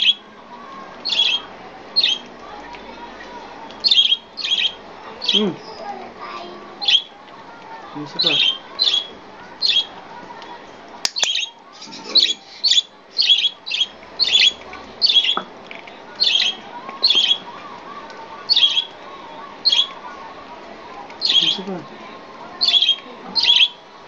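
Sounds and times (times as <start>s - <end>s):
budgerigar squawking chirps: 1.1s - 2.2s, 12.1s - 15.4s, 18.5s - 18.9s, 21.2s - 21.7s, 22.6s - 23.8s
sharp click: 11.0s - 11.4s.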